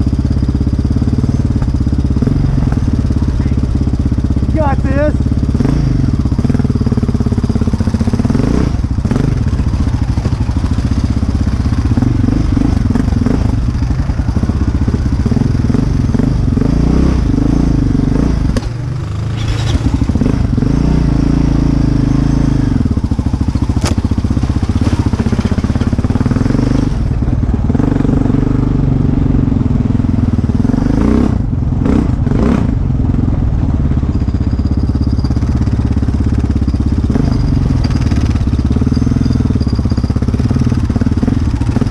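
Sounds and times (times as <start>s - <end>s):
atv engine revving: 0.0s - 41.9s.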